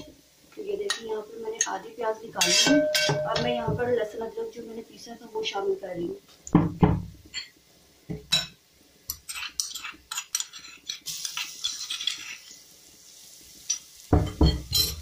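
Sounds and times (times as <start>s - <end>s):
metal spoon scraping a bowl: 2.4s - 3.2s, 9.1s - 12.5s.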